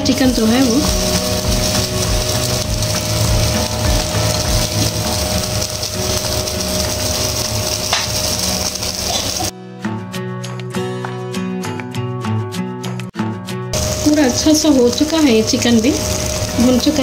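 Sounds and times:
meat sizzling over fire: 0.0s - 9.5s, 13.7s - 17.0s
gas burner flame rushing: 0.4s - 9.5s, 13.8s - 17.0s.

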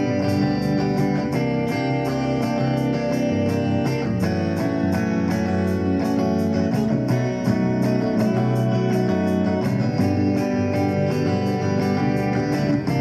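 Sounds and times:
guitar music with bass: 0.0s - 13.0s.

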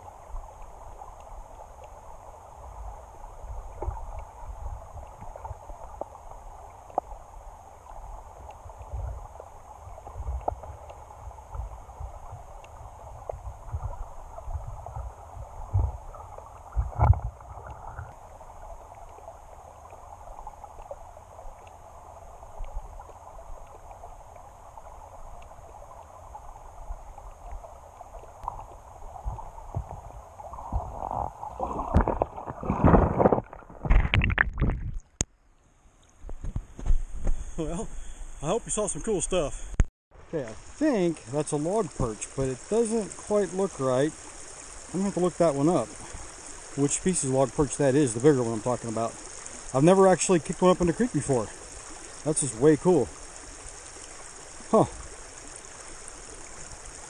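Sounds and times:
muffled underwater creek rush: 0.0s - 57.0s
small underwater clicks: 0.4s - 2.1s, 3.7s - 4.4s, 5.0s - 13.9s, 15.7s - 35.4s.

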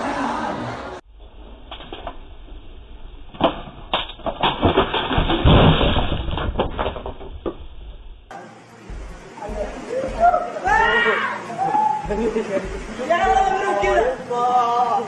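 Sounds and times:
plastic chair falling on stone: 3.4s - 7.6s.

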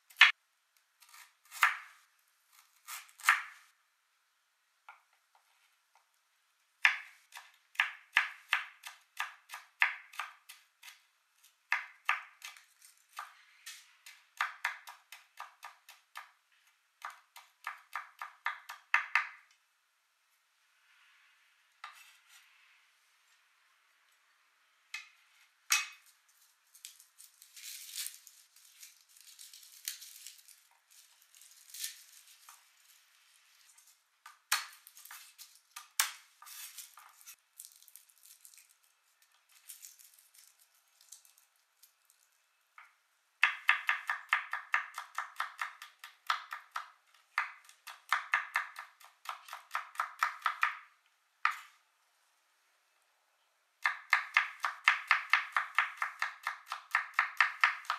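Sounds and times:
garlic skins crackling: 25.9s - 42.4s.

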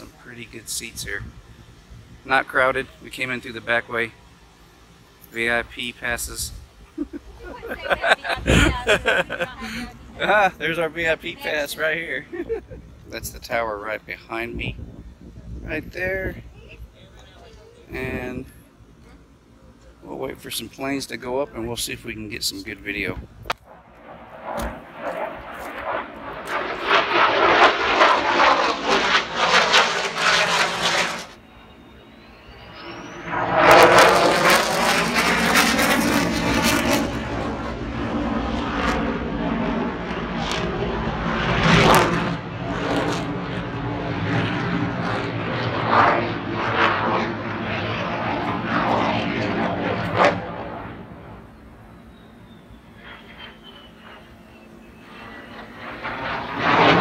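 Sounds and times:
jet flying over: 0.0s - 57.0s.

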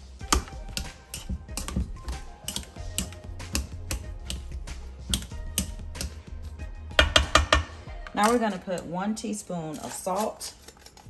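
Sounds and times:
faint background music: 0.0s - 11.0s
potato masher scraping metal bowl: 0.2s - 7.4s, 8.0s - 11.0s.

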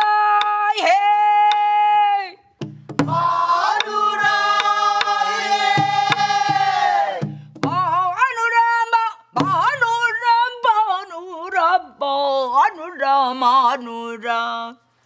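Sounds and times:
group singing in unison: 3.0s - 7.4s.

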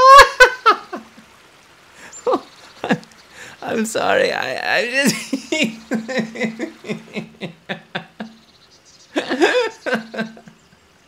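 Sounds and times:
man laughing: 0.0s - 1.2s, 2.0s - 3.8s, 4.6s - 8.4s, 9.1s - 10.7s.

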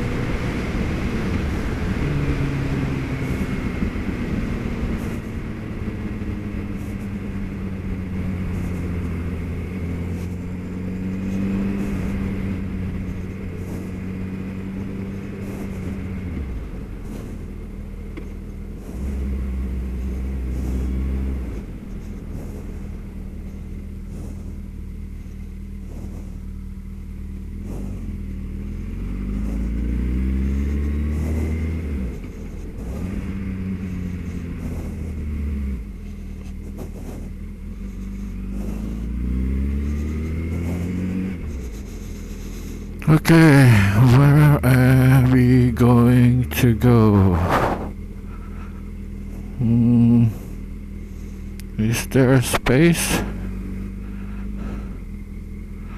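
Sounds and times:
wind rush on microphone: 0.0s - 17.9s, 27.5s - 39.1s, 47.4s - 48.0s
motorcycle engine revving: 0.0s - 55.9s.

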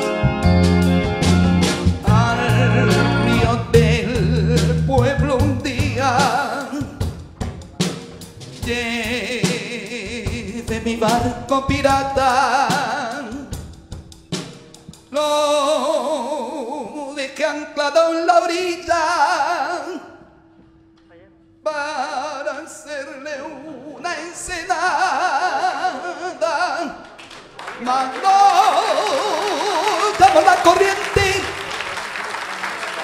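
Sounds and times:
wavering lead melody with vibrato: 0.0s - 6.2s
live band playing slow ballad: 0.0s - 16.8s.

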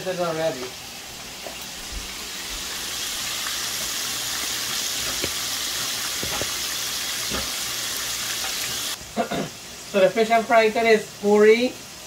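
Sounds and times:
fish sizzling in hot oil: 0.9s - 12.0s
oil popping: 2.6s - 9.0s.

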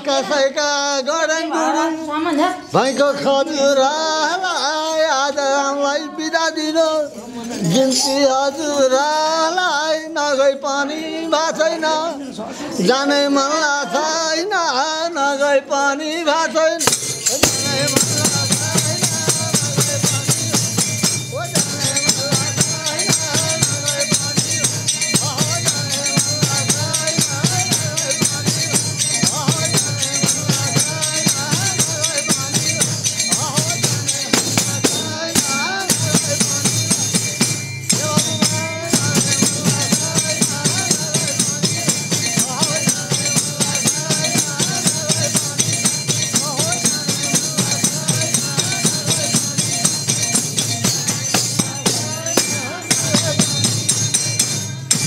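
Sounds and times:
jingling percussion: 0.0s - 55.0s.

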